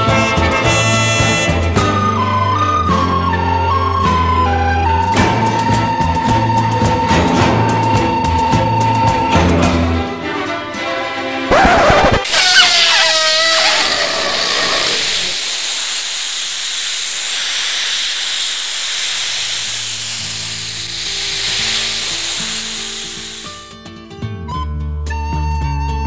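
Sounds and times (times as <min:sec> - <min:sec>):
loud steady hiss: 0:12.3 - 0:24.0.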